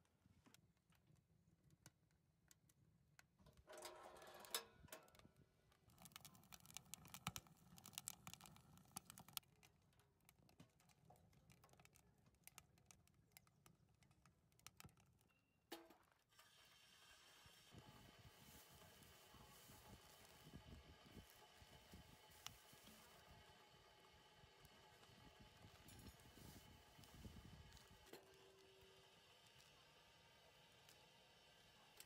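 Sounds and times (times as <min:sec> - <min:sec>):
wood fire crackling: 0:05.5 - 0:15.3, 0:17.4 - 0:29.9.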